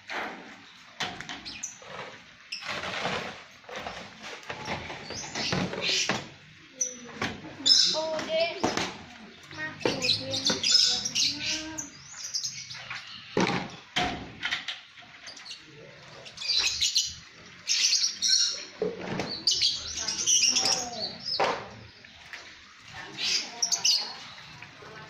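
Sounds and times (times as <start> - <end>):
birds chirping shrilly: 4.9 - 8.8, 9.4 - 13.9, 15.3 - 22.1.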